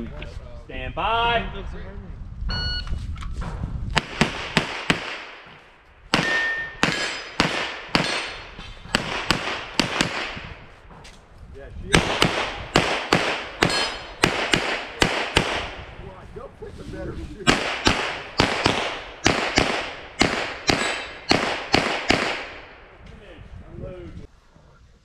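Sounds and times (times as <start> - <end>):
rapid pistol shots with echo: 4.0 - 10.6, 11.9 - 15.9, 17.4 - 22.8.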